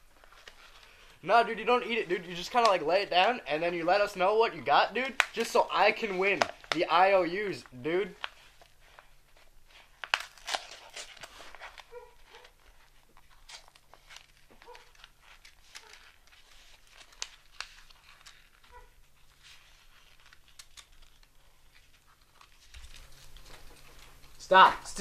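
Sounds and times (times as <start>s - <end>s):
paper card crinkling: 0.0s - 25.0s.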